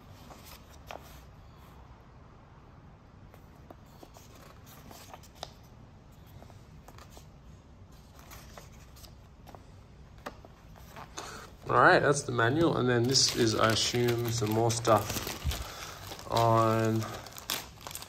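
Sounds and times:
paper pages turning: 3.3s - 7.3s, 7.9s - 11.7s, 12.4s - 18.0s.

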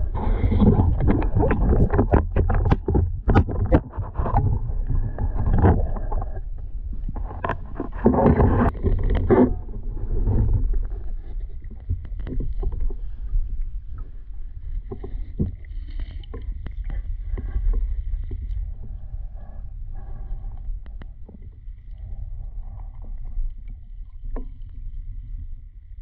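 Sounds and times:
water sloshing and splashing: 0.0s - 20.2s
low rumble: 0.0s - 26.0s.

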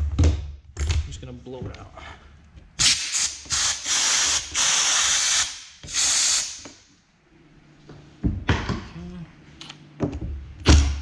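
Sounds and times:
compressed air blow gun hissing: 2.8s - 6.6s.

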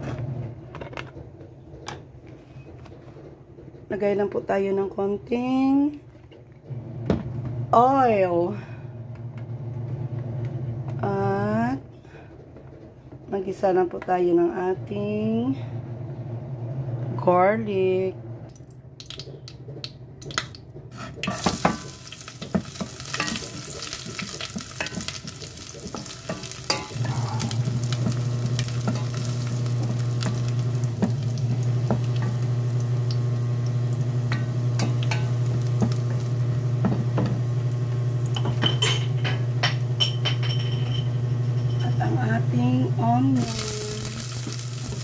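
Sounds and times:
steady low hum: 20.8s - 45.0s
wooden spoon scraping pan: 20.9s - 31.1s
garlic sizzling in oil: 21.2s - 38.7s, 43.4s - 45.0s.

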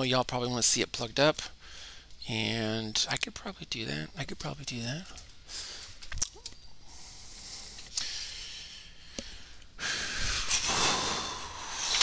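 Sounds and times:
rustling and scraping: 11.6s - 12.0s.

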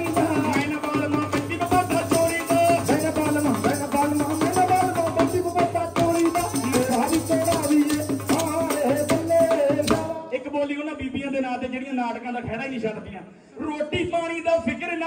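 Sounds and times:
fast hand percussion: 0.0s - 10.2s.

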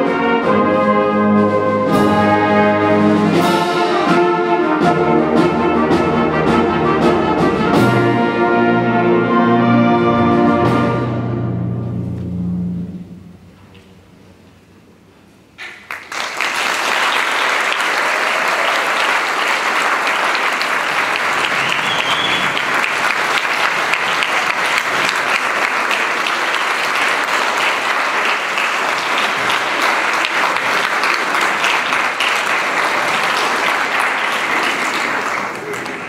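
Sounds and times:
audience applauding: 15.6s - 36.0s.

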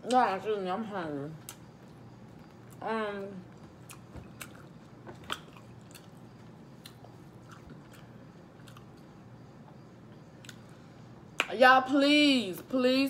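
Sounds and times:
person chewing: 3.6s - 9.1s, 10.4s - 10.7s.

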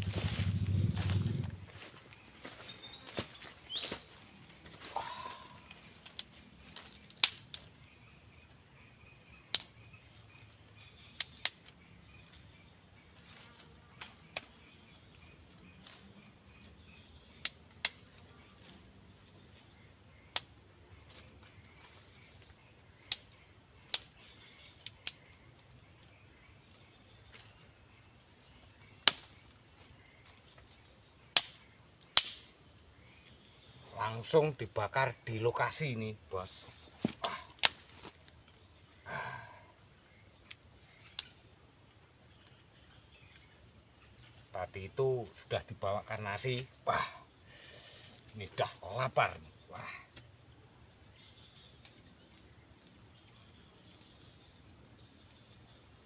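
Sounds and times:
insects trilling: 0.0s - 56.0s
dry wood snapping: 5.7s - 7.7s, 9.5s - 9.8s, 17.4s - 18.0s, 23.0s - 23.3s, 23.9s - 24.2s, 29.0s - 29.4s, 31.3s - 32.5s, 37.0s - 38.2s.

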